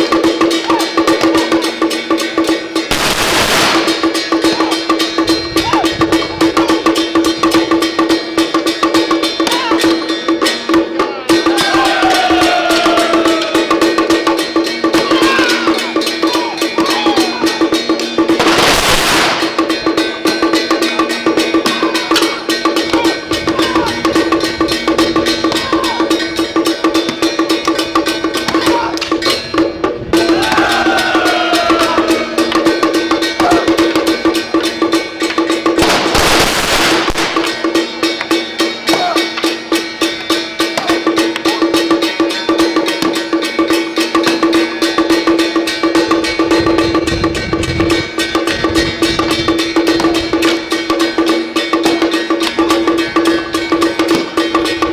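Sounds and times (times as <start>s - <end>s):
fast drum strikes: 0.0s - 39.3s
loud cymbal crash: 2.9s - 4.4s, 18.4s - 19.8s, 35.8s - 37.8s.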